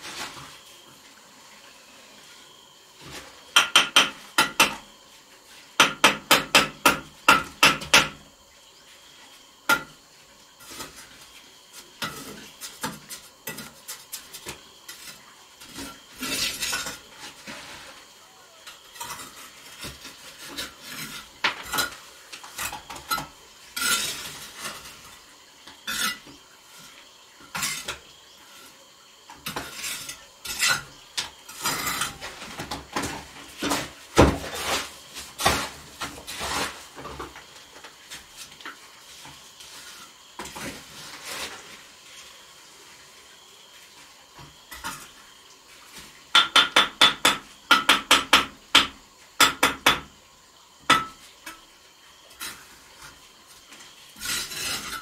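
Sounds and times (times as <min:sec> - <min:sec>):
trowel tapping bricks: 0:03.5 - 0:04.9
trowel scraping mortar: 0:12.0 - 0:18.0, 0:18.8 - 0:23.1, 0:23.7 - 0:25.1, 0:33.6 - 0:37.0, 0:54.2 - 0:55.0.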